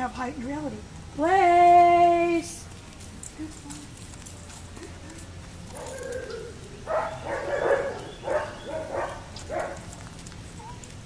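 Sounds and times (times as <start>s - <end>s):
dog barking: 5.8s - 9.9s.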